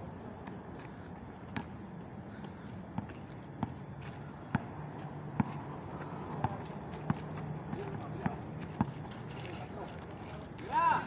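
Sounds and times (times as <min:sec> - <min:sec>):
outdoor background noise: 0:00.0 - 0:11.0
footsteps of players: 0:00.4 - 0:11.0
basketball bouncing on asphalt: 0:01.5 - 0:01.8, 0:02.4 - 0:05.7, 0:06.4 - 0:09.2.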